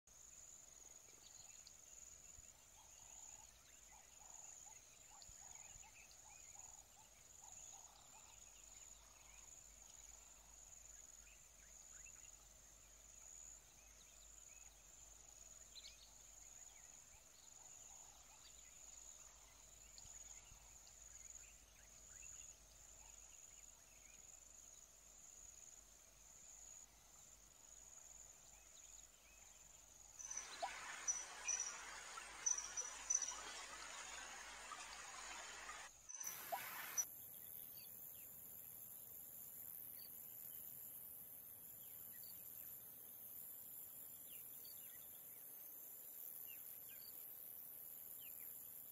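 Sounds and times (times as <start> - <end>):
faint chirps: 0.2 - 38.0.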